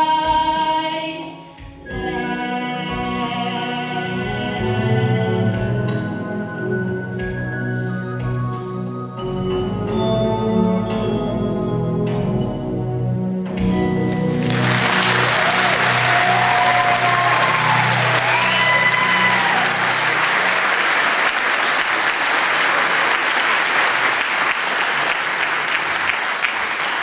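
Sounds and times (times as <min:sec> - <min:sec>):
closing music: 0:01.8 - 0:22.5
audience applause: 0:13.9 - 0:27.0.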